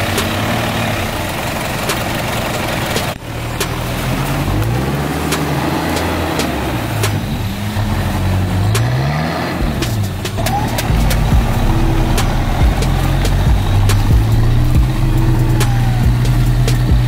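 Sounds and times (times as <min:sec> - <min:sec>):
engine revving: 0:00.0 - 0:17.0
sharp clicks and knocks: 0:09.7 - 0:17.0.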